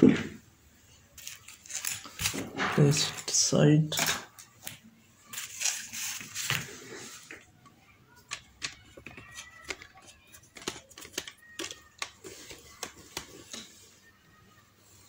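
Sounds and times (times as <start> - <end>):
small objects clicking and tapping: 8.2 - 13.8.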